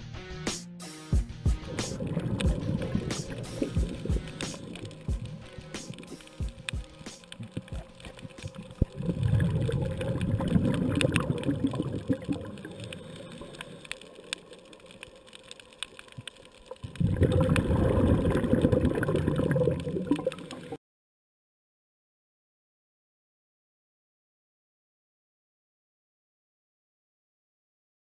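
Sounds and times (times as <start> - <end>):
underwater exhaled bubbles rushing: 1.6 - 20.8
faint clicks: 1.8 - 17.7, 18.6 - 20.8.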